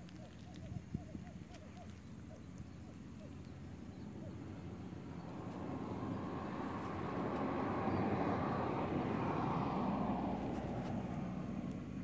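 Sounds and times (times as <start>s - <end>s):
vehicle passing by: 3.1s - 12.0s.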